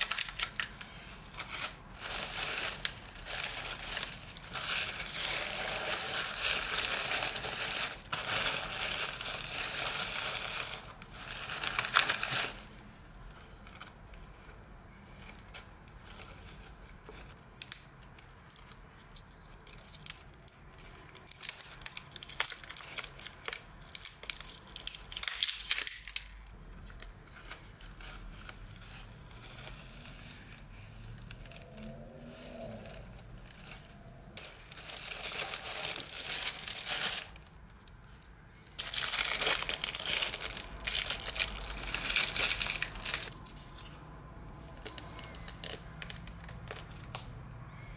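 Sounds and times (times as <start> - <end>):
tissue paper crinkling: 0.0 - 12.7, 26.9 - 38.2, 38.8 - 43.9.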